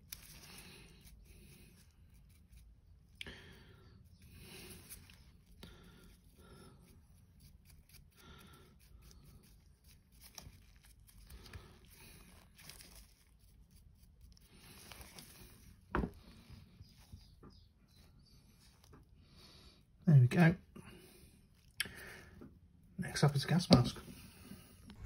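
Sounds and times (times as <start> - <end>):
dry brush scratching: 4.7 - 15.8.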